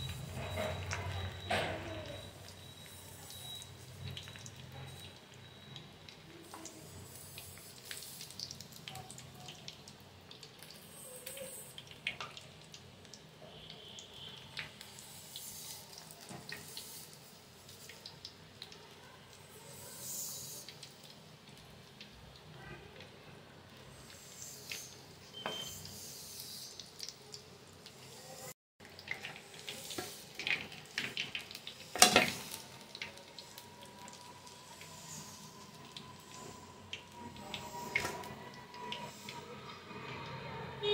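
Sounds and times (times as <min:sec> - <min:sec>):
oil popping and crackling: 0:00.0 - 0:28.2, 0:28.8 - 0:40.2
deep-frying oil sizzling: 0:00.0 - 0:40.9
spatula stirring in pan: 0:28.8 - 0:40.8.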